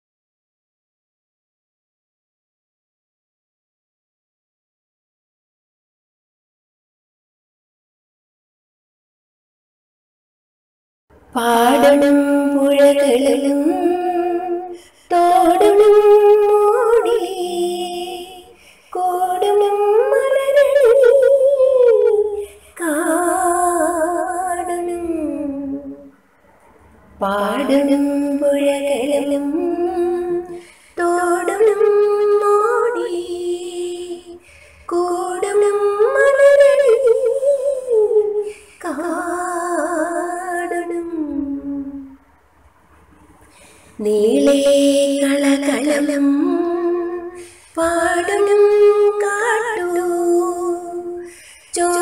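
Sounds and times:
woman singing slowly: 11.3 - 26.1, 27.2 - 42.2, 44.0 - 52.0.

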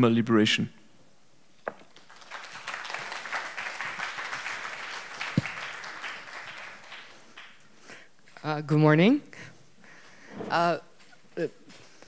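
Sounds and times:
audience applauding: 1.9 - 7.6.

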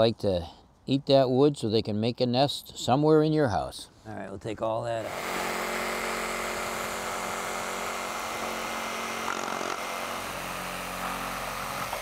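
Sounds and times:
reciprocating saw cutting wood: 5.0 - 12.0.

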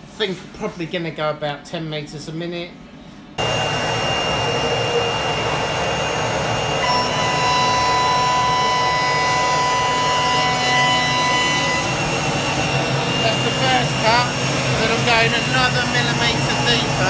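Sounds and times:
lower whine: 3.0 - 17.0
router spindle high whine: 3.4 - 17.0.

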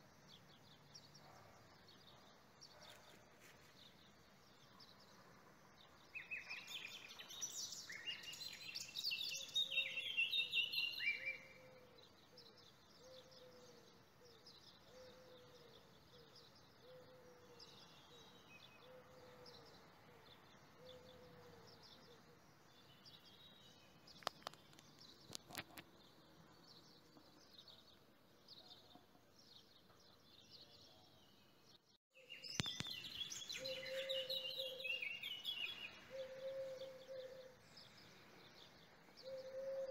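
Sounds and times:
small birds chirping: 0.0 - 39.9
lower bird call: 32.4 - 38.2.

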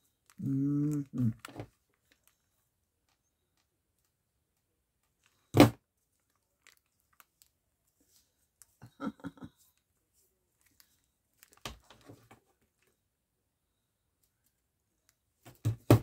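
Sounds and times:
clicking and crunching handling: 0.1 - 5.5, 6.2 - 7.6, 10.5 - 12.9.

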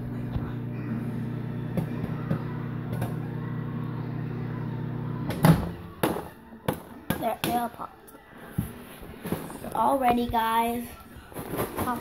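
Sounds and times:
microwave oven humming: 0.0 - 6.0
microwave stopping clunk: 4.4 - 6.2.

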